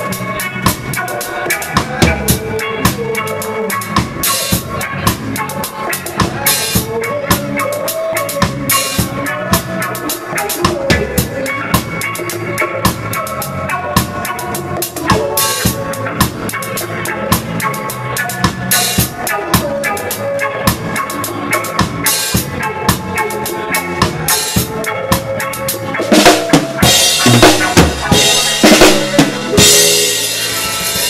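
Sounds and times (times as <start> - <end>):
reggae band playing: 0.0 - 31.0
snare drum: 26.1 - 30.1.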